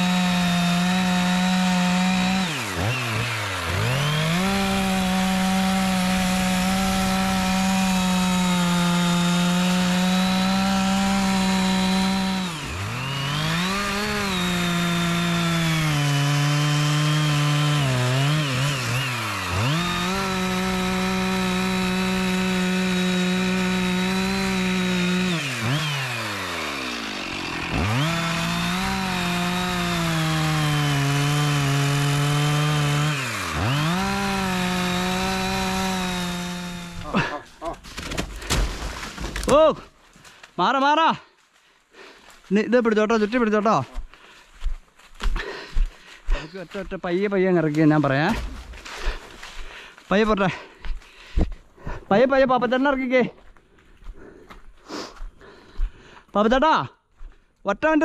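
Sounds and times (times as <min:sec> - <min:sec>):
chainsaw cutting wood: 0:00.0 - 0:40.4, 0:47.6 - 0:52.0.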